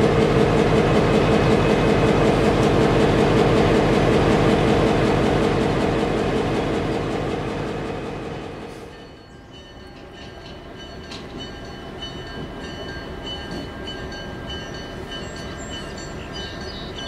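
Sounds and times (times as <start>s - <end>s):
diesel locomotives rumbling: 0.0s - 17.0s
distant locomotive rumble: 0.0s - 17.0s
grade crossing warning bell: 8.9s - 17.0s.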